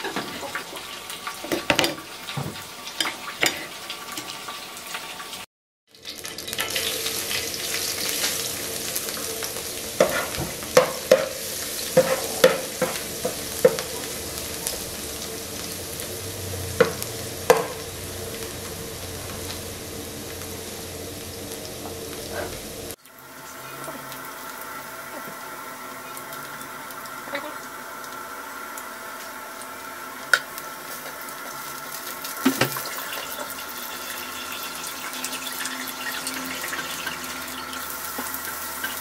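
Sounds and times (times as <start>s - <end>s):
garlic sizzling in oil: 0.0s - 39.0s
spatula knocking and scraping pan: 10.0s - 14.0s, 16.8s - 17.8s.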